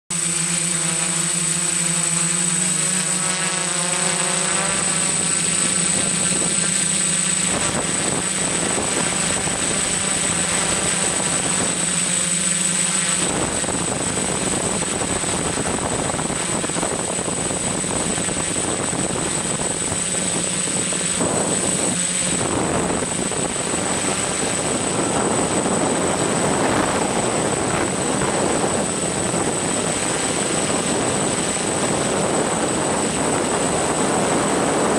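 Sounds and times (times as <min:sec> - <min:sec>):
drone motors buzzing: 0:00.1 - 0:34.9
high propeller whine: 0:00.1 - 0:34.9.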